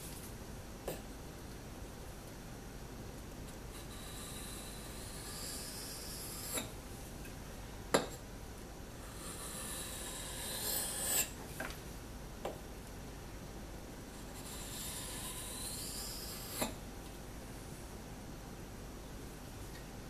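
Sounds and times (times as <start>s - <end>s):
blade scraping on whetstone: 3.8s - 6.7s, 9.0s - 11.4s, 14.2s - 16.8s.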